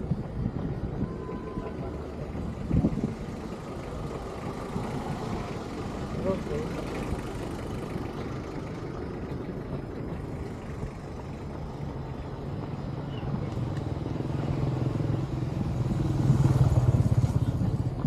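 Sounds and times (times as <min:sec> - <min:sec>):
traffic noise: 0:00.0 - 0:18.0
vehicle engine hum: 0:00.0 - 0:18.0.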